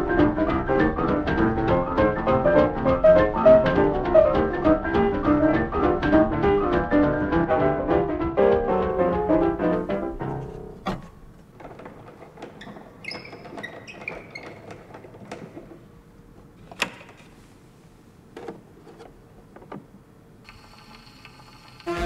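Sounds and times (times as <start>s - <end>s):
small squeaks: 11.8s - 15.7s.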